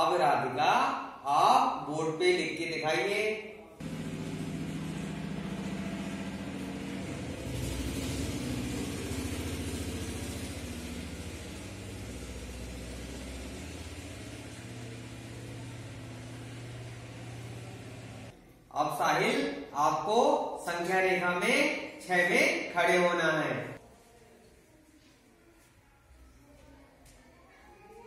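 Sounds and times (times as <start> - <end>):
engine running with low hum: 3.8 - 18.3.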